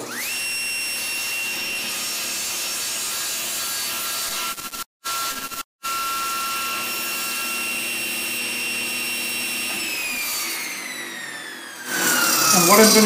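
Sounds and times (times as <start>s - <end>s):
table saw whining: 0.0s - 13.0s
saw blade spinning down: 9.6s - 13.0s.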